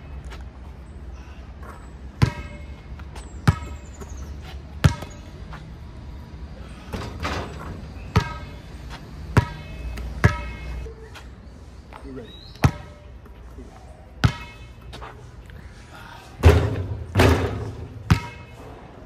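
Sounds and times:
basketball bouncing on hard court: 0:02.2 - 0:02.6, 0:03.4 - 0:03.8, 0:04.8 - 0:05.2, 0:14.2 - 0:14.6, 0:16.4 - 0:18.5.

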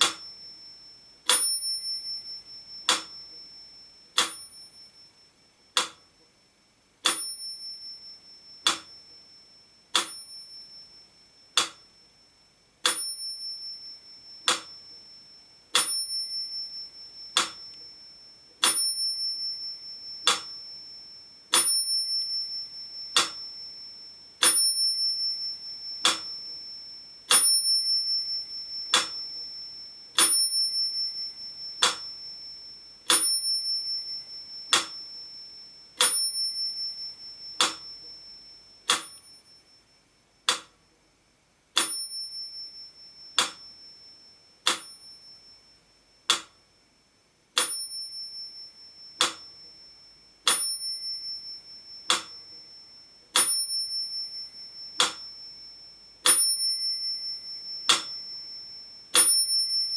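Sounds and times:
metronome ticking: 0:00.0 - 0:00.7, 0:01.3 - 0:03.6, 0:04.2 - 0:04.8, 0:05.6 - 0:06.1, 0:07.0 - 0:09.0, 0:10.0 - 0:10.6, 0:11.5 - 0:11.9, 0:12.8 - 0:15.0, 0:15.7 - 0:18.0, 0:18.6 - 0:20.8, 0:21.5 - 0:23.8, 0:24.4 - 0:38.2, 0:38.8 - 0:39.4, 0:40.4 - 0:40.8, 0:41.8 - 0:43.9, 0:44.6 - 0:45.4, 0:46.2 - 0:46.6, 0:47.6 - 0:49.8, 0:50.5 - 0:52.7, 0:53.3 - 0:55.4, 0:56.2 - 0:59.9
metronome bell ringing: 0:00.0 - 0:06.0, 0:07.1 - 0:40.0, 0:41.8 - 0:47.0, 0:47.6 - 0:59.9.

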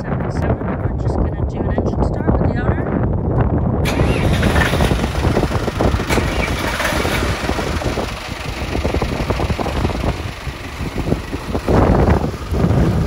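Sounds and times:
marine diesel engine running: 0:03.8 - 0:13.0.

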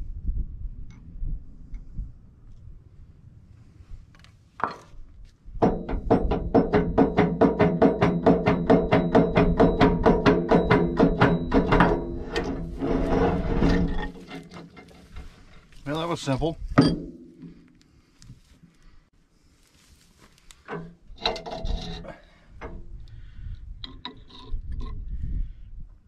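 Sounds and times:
impact wrench hammering: 0:05.6 - 0:12.6.

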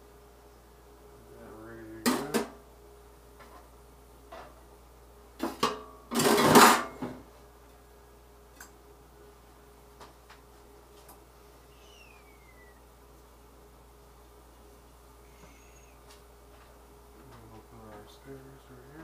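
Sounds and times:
cookware clattering in metal sink: 0:05.6 - 0:07.0.

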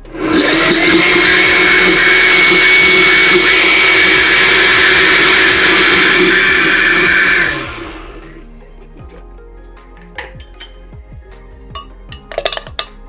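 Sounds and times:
blender motor whirring: 0:00.0 - 0:08.4.

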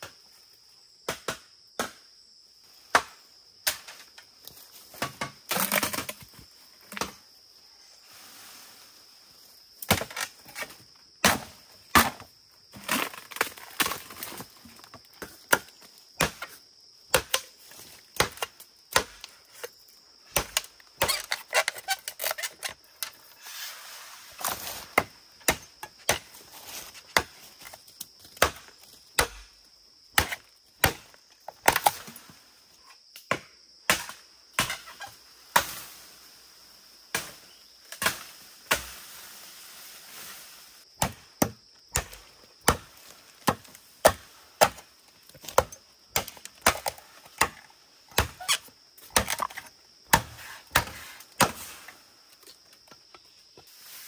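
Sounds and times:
blade chopping wood: 0:01.1 - 0:02.0, 0:09.8 - 0:12.2, 0:15.2 - 0:16.5, 0:17.1 - 0:17.5, 0:18.2 - 0:19.3, 0:20.3 - 0:22.8, 0:24.4 - 0:26.3, 0:28.3 - 0:29.5, 0:30.1 - 0:32.2, 0:41.0 - 0:51.7.

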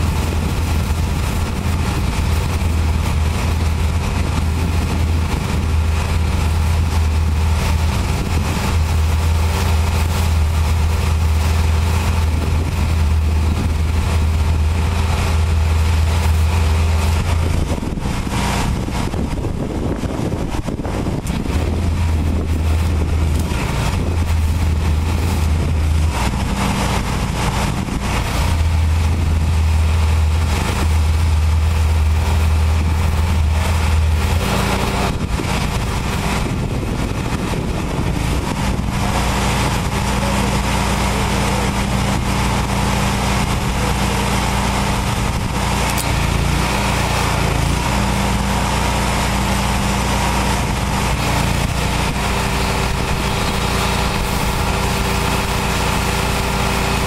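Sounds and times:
pressure washer engine running: 0:00.0 - 0:57.0
high-pressure spray hissing: 0:50.4 - 0:57.0.

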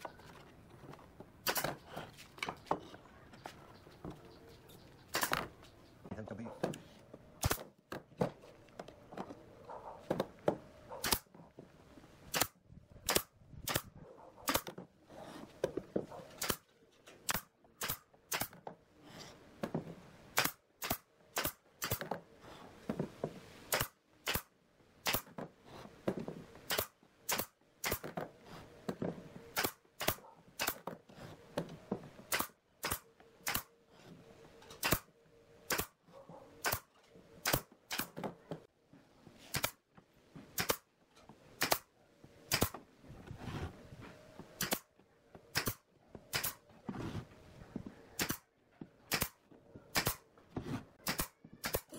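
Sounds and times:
pneumatic nailer firing: 0:01.4 - 0:01.8, 0:05.1 - 0:05.5, 0:07.4 - 0:07.8, 0:11.0 - 0:11.3, 0:12.3 - 0:14.8, 0:16.3 - 0:18.6, 0:20.3 - 0:22.2, 0:23.7 - 0:25.4, 0:26.6 - 0:28.2, 0:29.5 - 0:30.9, 0:32.3 - 0:33.7, 0:34.7 - 0:36.0, 0:36.6 - 0:38.2, 0:40.5 - 0:40.9, 0:41.6 - 0:41.9, 0:42.5 - 0:42.8, 0:44.6 - 0:44.9, 0:45.5 - 0:46.6, 0:48.2 - 0:48.4, 0:49.1 - 0:50.2, 0:51.0 - 0:51.9.

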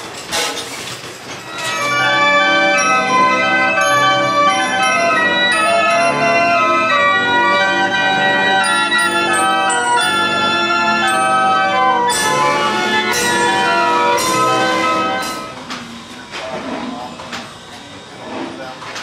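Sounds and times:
band organ playing tune: 0:01.5 - 0:15.6.

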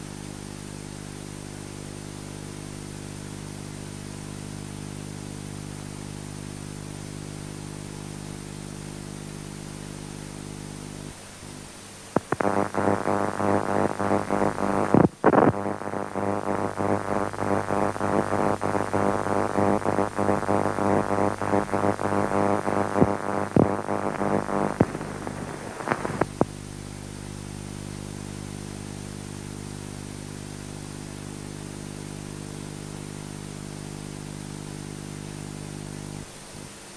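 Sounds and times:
steady electrical buzz: 0:00.0 - 0:36.9
constant hum: 0:10.9 - 0:27.2
rapid irregular crackle: 0:12.1 - 0:26.6.

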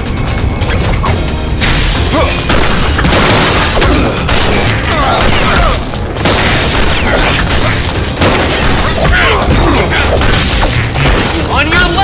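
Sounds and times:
action music: 0:00.0 - 0:12.0
booming punches and hits: 0:01.6 - 0:11.6.

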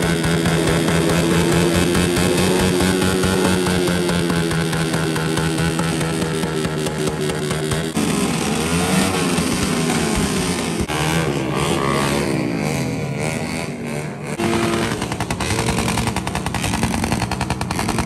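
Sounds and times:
exhaust backfire pops: 0:00.0 - 0:08.5
motorcycle engines revving: 0:00.0 - 0:18.0.

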